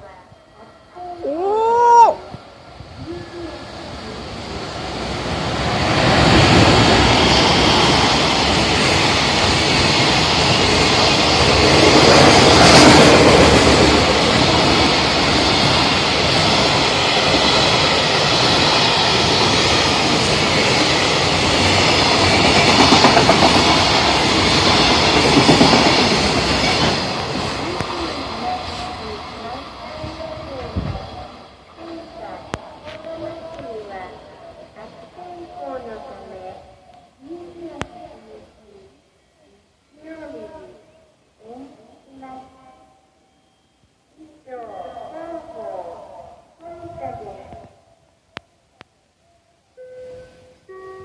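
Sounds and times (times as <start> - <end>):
electric locomotive passing: 0.0 - 51.0
rhythmic train wheel beat: 4.9 - 30.2.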